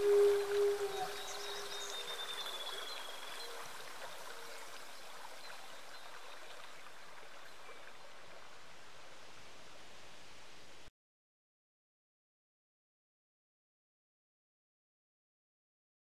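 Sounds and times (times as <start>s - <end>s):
flute music: 0.0s - 2.5s
rushing stream water: 0.0s - 10.9s.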